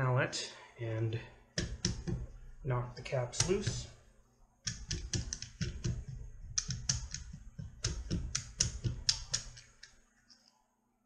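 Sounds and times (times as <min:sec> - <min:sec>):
mallet tapping metal caps: 0:01.6 - 0:02.4, 0:04.7 - 0:09.9.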